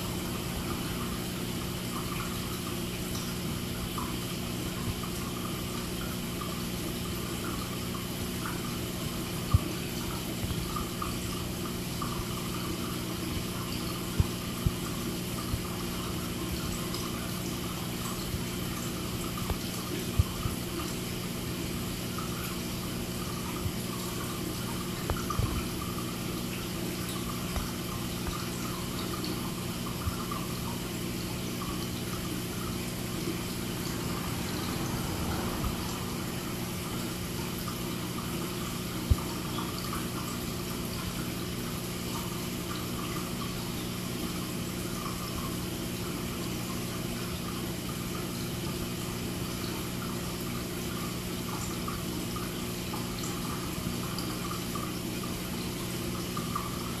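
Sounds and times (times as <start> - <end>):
aquarium water trickling and splashing: 0.0 - 57.0
low hum: 32.2 - 39.3.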